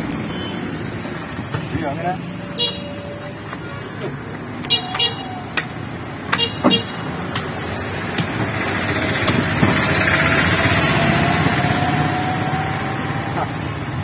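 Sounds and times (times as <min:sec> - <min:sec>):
vehicle engine passing by: 0:07.6 - 0:14.0.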